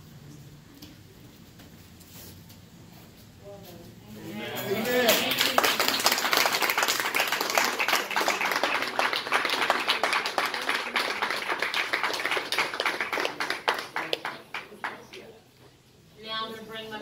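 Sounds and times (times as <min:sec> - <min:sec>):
people applauding: 0:04.8 - 0:15.2.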